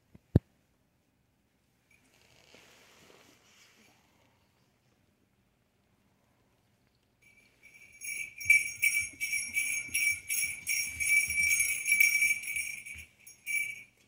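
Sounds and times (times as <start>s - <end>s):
small bells shaken: 7.2s - 14.0s.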